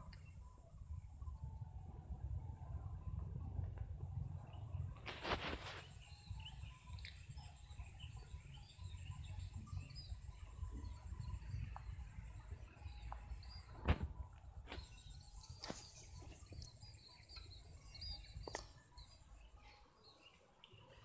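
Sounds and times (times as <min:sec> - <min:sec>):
low rumble: 0:00.2 - 0:05.6
small bird chirps: 0:04.4 - 0:21.0
high-pitched insect drone: 0:05.6 - 0:13.9.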